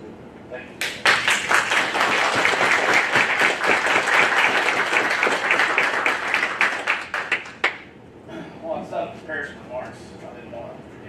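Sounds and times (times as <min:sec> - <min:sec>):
crowd applauding: 0:00.8 - 0:07.8.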